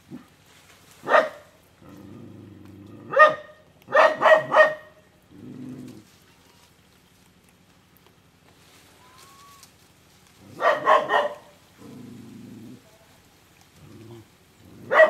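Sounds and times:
animal barking: 1.0s - 6.1s, 10.4s - 12.9s, 13.8s - 15.0s
growl-like rumble: 1.7s - 3.2s, 5.1s - 6.7s, 11.6s - 15.0s.

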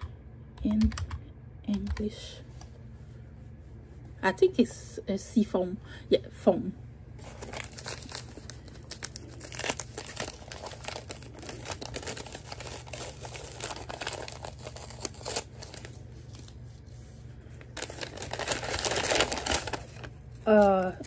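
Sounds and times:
paper bag crinkling and tearing: 7.2s - 16.9s, 17.5s - 21.0s.

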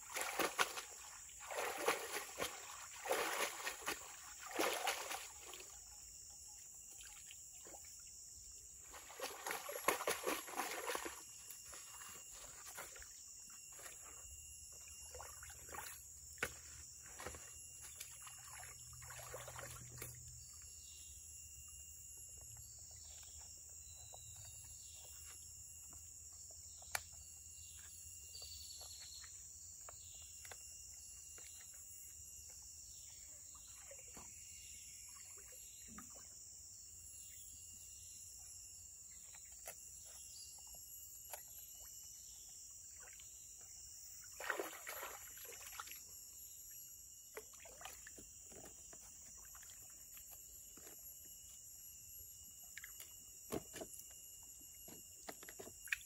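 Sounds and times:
water stirred by hand: 0.0s - 5.8s, 8.8s - 20.4s, 44.3s - 46.1s
insects droning: 0.0s - 56.0s.

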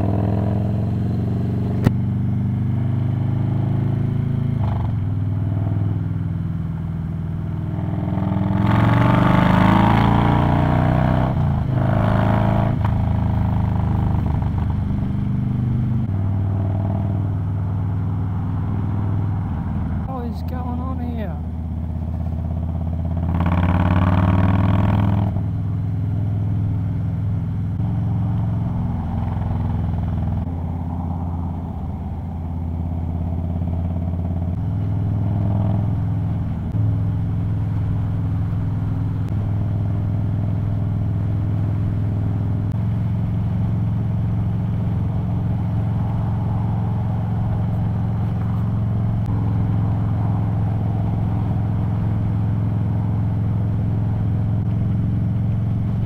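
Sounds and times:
motorcycle engine at speed: 0.0s - 56.0s.

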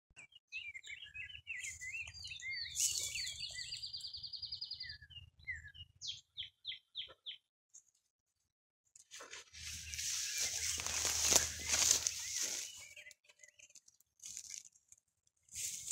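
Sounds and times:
songbirds singing: 0.2s - 8.5s, 9.5s - 14.2s
rustle of grass: 9.1s - 12.9s, 15.5s - 15.9s.

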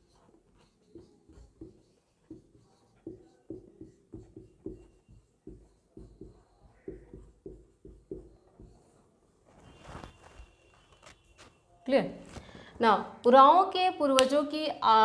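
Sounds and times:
marker pen writing on whiteboard: 0.0s - 11.6s.

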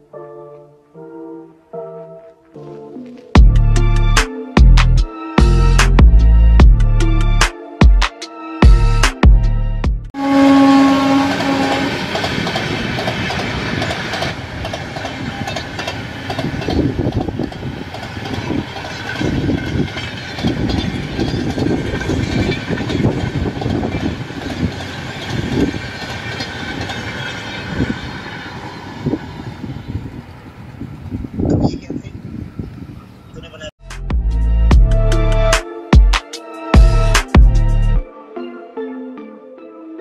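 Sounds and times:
train horn: 10.2s - 12.2s
train rumble: 10.4s - 33.7s
wheels clattering over rail joints: 11.4s - 29.5s.

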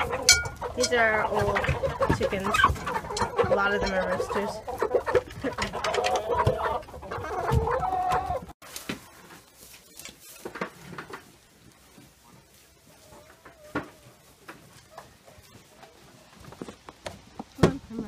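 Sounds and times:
chickens clucking and calling: 0.0s - 18.0s
scattered knocks and rustles: 8.6s - 17.9s.

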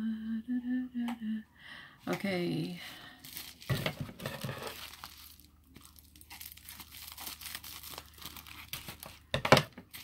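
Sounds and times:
packaging rustling and crinkling: 3.2s - 10.0s.

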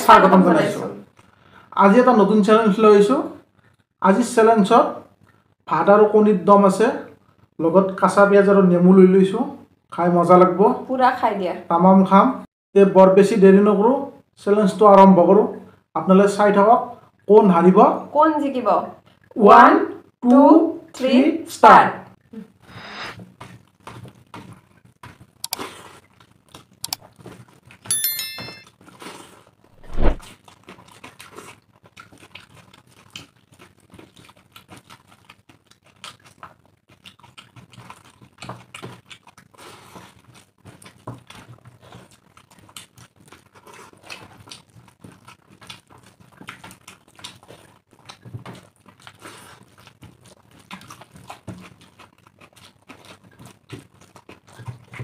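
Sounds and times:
chewing and lip smacking: 23.4s - 27.8s, 30.3s - 55.0s
short high ringing tone: 27.9s - 28.7s.

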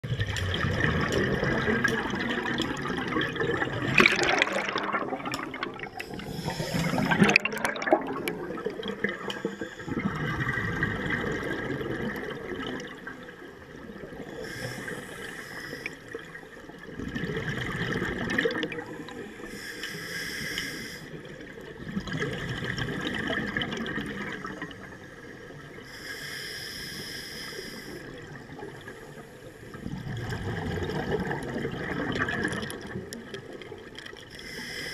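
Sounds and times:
bubbling on exhale: 0.0s - 13.1s, 29.7s - 33.5s
regulator hiss on inhale: 5.9s - 7.2s, 9.2s - 10.2s, 14.2s - 16.3s, 18.8s - 21.3s, 24.9s - 28.2s, 34.3s - 34.9s.

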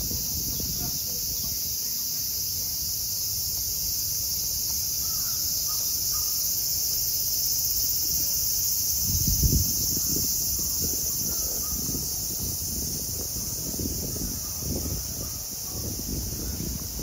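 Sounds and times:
cicadas buzzing: 0.0s - 17.0s
faint crow caws: 5.0s - 6.5s.

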